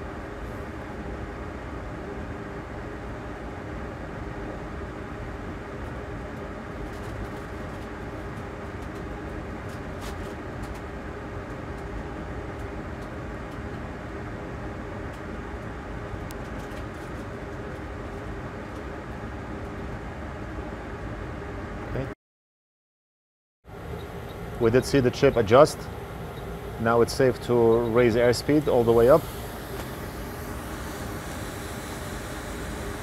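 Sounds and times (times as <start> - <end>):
hot air blower hissing: 23.7 - 33.0.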